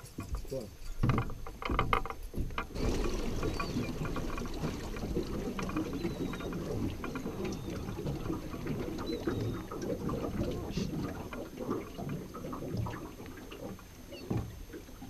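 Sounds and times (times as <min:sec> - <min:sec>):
water sloshing and lapping: 0:00.0 - 0:15.0
small water splashes: 0:02.4 - 0:15.0.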